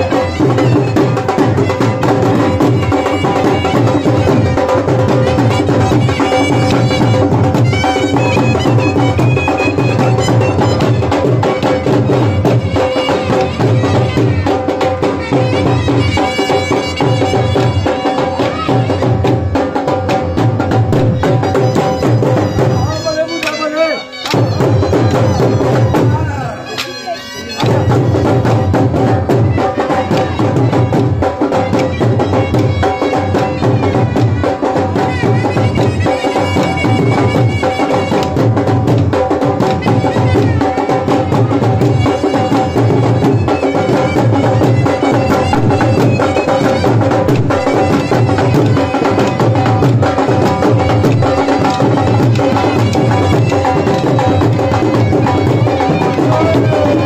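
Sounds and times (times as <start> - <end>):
dhol drum beating: 0.0 - 57.0
droning wind instrument: 21.0 - 38.4.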